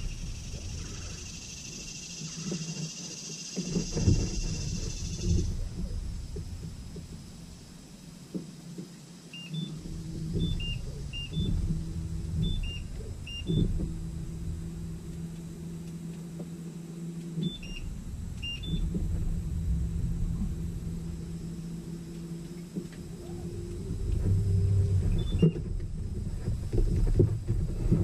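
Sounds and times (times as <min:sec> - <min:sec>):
electric trolling motor humming: 0:00.0 - 0:28.0.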